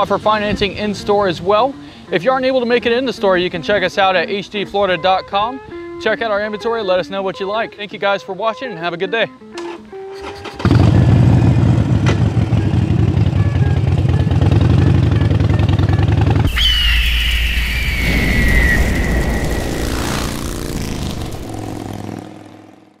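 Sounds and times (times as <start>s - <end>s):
motorcycle engine idling: 10.6s - 16.5s
deep rumble with falling screech: 16.5s - 22.2s.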